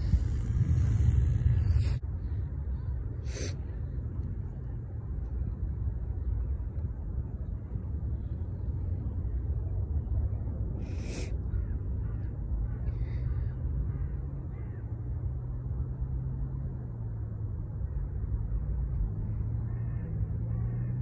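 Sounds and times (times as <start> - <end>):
distant dirt bike engine: 0.0 - 2.0
wind rumble on microphone: 0.0 - 21.0.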